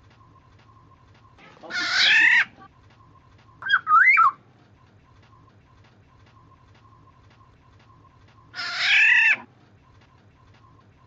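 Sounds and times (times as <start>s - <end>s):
bird fluty whistle: 3.5s - 4.4s.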